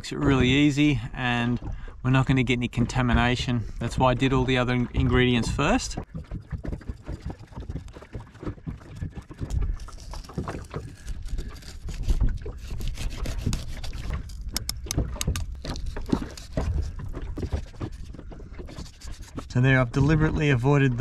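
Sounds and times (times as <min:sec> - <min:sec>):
low rumble of wind: 0:00.0 - 0:21.0
water: 0:00.0 - 0:21.0
knife cutting and scraping fish: 0:09.0 - 0:19.6.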